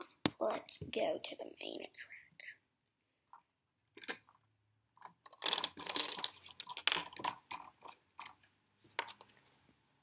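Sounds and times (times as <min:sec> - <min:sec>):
plastic toy clicking and rattling: 0:05.0 - 0:08.5.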